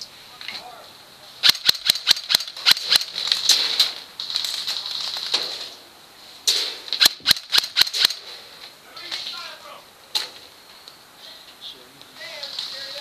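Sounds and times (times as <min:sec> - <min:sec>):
airsoft rifle firing clicks: 0:01.4 - 0:04.0, 0:06.5 - 0:08.3.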